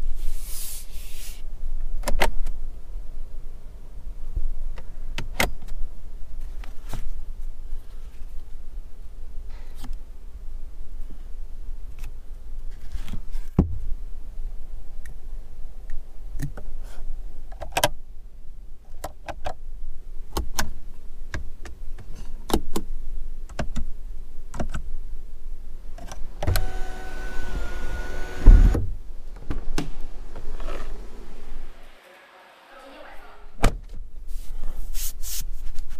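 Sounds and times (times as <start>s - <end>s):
sunroof shade motor running: 26.3s - 28.8s, 30.1s - 33.0s.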